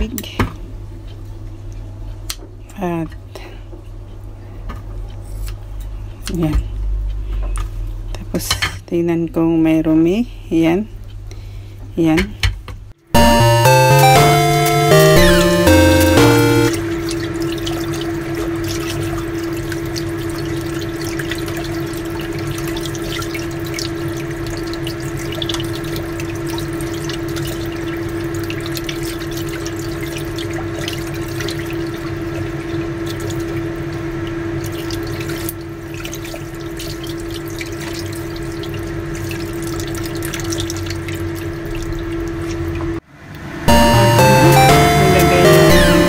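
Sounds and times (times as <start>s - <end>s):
water splashing in steel sink: 34.6s - 42.6s.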